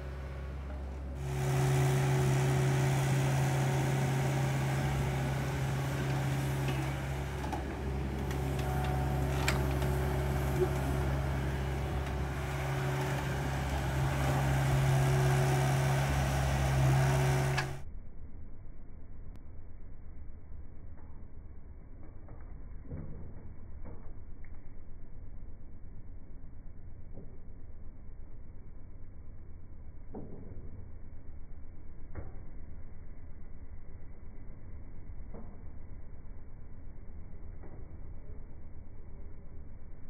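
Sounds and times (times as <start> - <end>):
excavator diesel engine running: 0.0 - 17.8.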